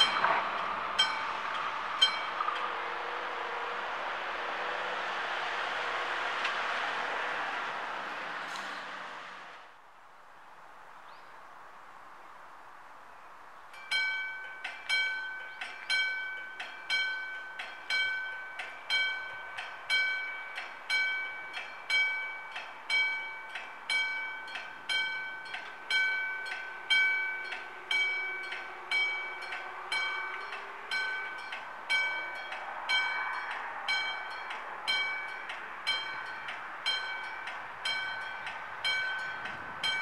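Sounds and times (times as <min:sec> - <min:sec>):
electric level-crossing bells ringing: 0:00.0 - 0:02.8, 0:13.7 - 0:40.0.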